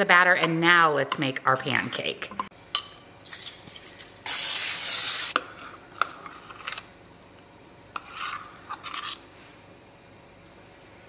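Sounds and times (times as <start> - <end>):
cooking oil spray hissing: 4.2 - 5.4.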